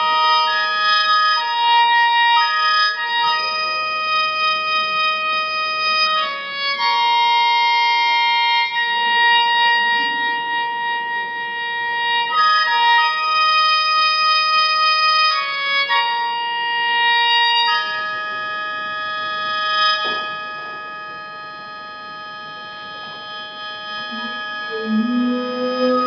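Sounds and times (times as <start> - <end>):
slow melody of held notes: 0.0 - 26.0.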